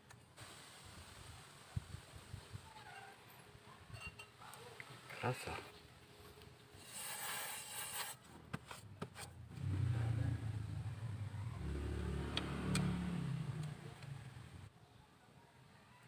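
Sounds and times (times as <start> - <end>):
vehicle engine rumbling: 8.8 - 14.7.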